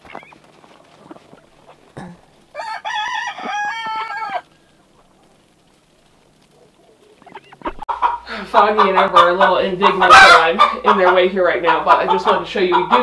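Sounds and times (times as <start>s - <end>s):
rooster crowing: 2.5s - 4.6s.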